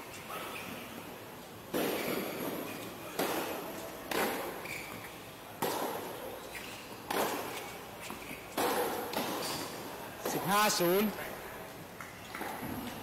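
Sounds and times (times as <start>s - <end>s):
tennis ball hit by rackets: 1.7s - 4.6s, 5.6s - 6.1s, 7.1s - 7.6s, 8.5s - 9.6s.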